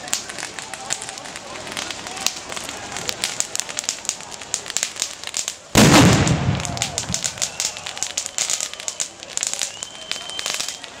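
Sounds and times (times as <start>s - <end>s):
fireworks crackling pops: 0.0s - 11.0s
loud firework bang: 5.8s - 7.7s.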